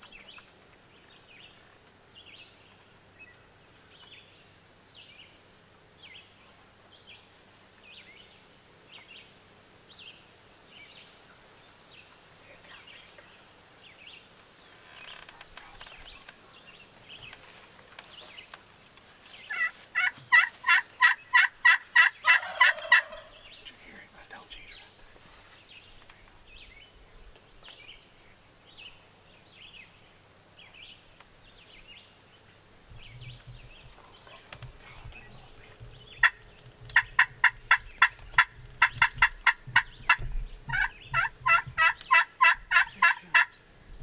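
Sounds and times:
turkey call yelps: 19.5s - 23.3s, 37.0s - 43.6s.

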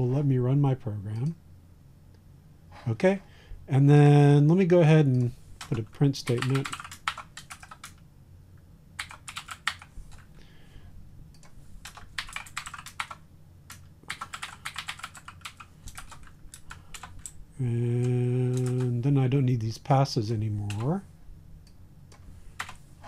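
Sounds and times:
man talking: 0.0s - 1.4s, 2.8s - 6.8s, 17.6s - 21.1s.

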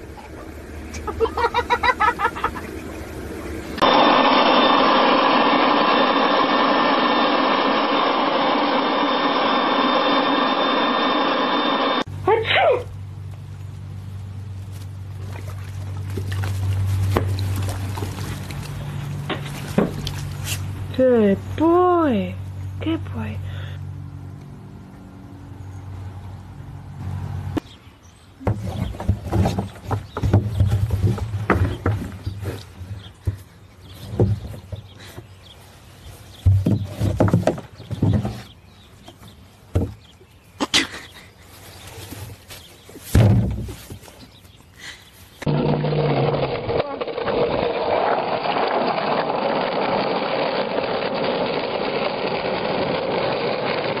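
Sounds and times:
steady low hum: 0.0s - 27.5s
small motor whirring: 3.8s - 12.1s.

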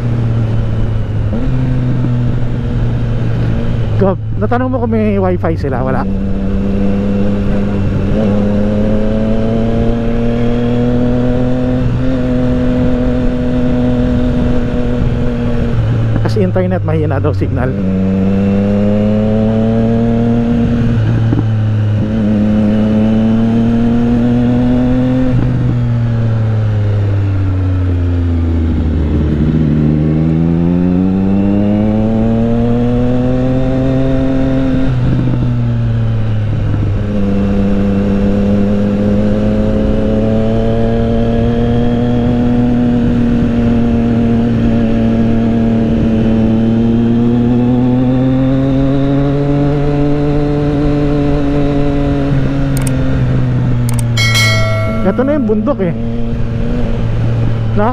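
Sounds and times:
motorcycle engine revving: 0.0s - 57.9s.

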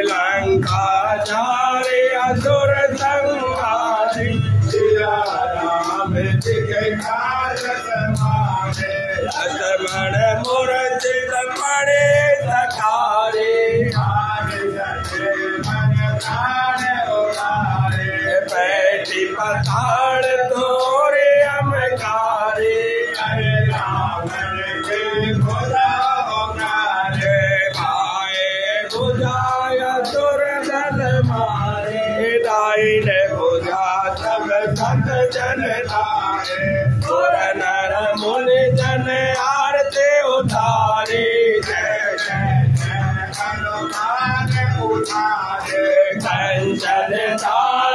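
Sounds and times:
men singing a hymn: 0.0s - 47.9s
percussion beat: 0.0s - 47.9s.

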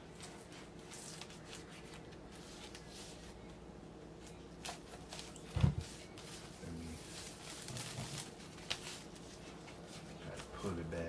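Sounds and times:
fingers crinkling shrink-wrap: 6.6s - 9.4s.

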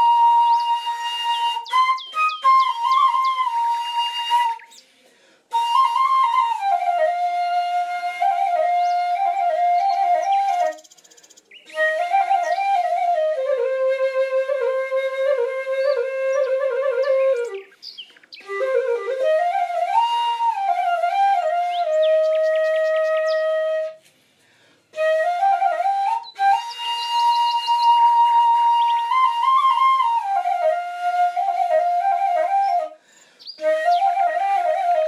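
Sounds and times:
solo flute melody: 0.0s - 4.9s, 5.5s - 10.8s, 11.6s - 17.8s, 18.4s - 24.1s, 24.9s - 35.0s.

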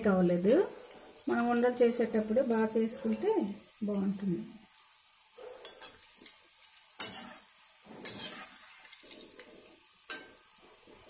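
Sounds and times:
dough deep-frying in oil: 0.0s - 11.0s
steel spoon clinking on metal pan: 5.6s - 6.0s, 10.1s - 10.4s.

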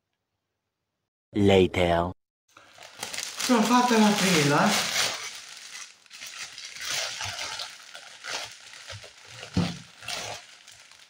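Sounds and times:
plastic wrapping crackling and rustling: 2.5s - 11.0s.

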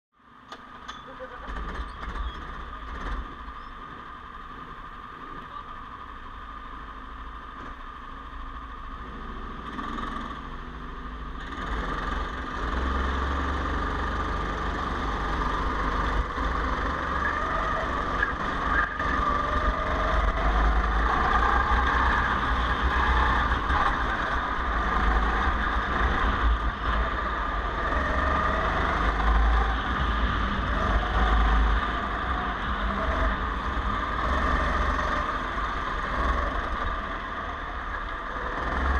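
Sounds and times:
go-kart engine: 0.2s - 38.9s.

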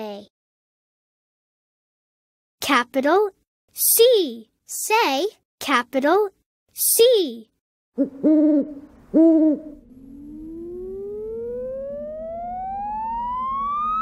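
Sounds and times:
cartoon owl hooting: 8.0s - 11.3s
rising sound-effect tone: 9.6s - 14.0s.

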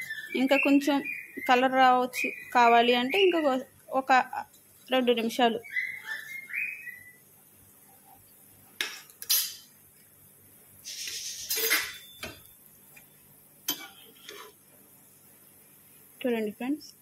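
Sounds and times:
food frying in oil: 1.5s - 5.8s, 7.7s - 17.0s.

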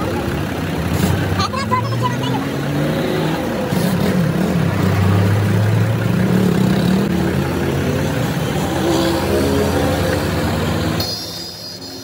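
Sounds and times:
vehicle engine running: 0.0s - 8.8s.

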